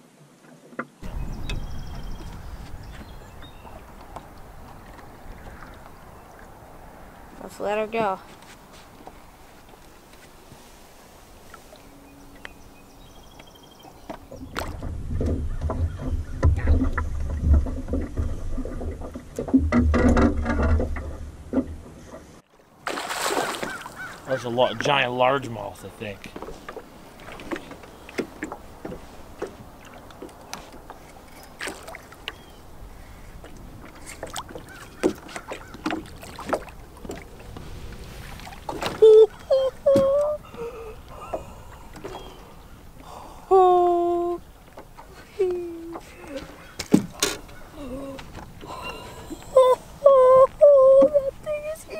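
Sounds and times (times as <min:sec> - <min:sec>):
wind rumble on microphone: 0:01.0 - 0:07.4, 0:13.8 - 0:22.4
water slapping against boat hull: 0:14.0 - 0:24.4, 0:26.2 - 0:40.4, 0:45.9 - 0:48.7.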